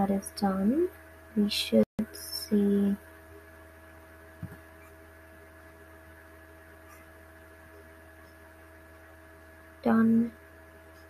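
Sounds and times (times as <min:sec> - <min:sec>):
electrical mains hum: 0:00.0 - 0:11.0
soft low thump: 0:04.4 - 0:04.6.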